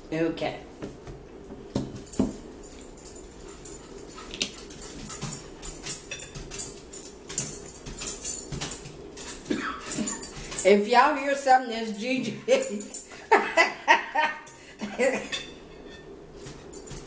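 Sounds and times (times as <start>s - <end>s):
cutlery scraping on plates: 14.5s - 17.0s.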